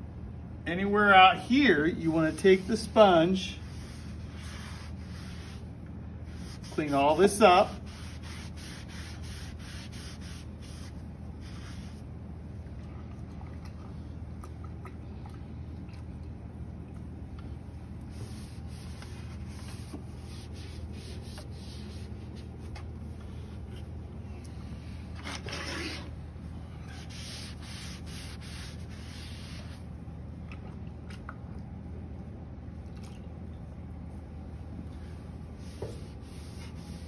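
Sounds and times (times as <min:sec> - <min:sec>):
steady low hum: 0:00.0 - 0:37.0
damp sponge rubbing: 0:02.1 - 0:05.7, 0:06.3 - 0:12.1, 0:18.1 - 0:23.9, 0:26.8 - 0:29.8, 0:35.2 - 0:37.0.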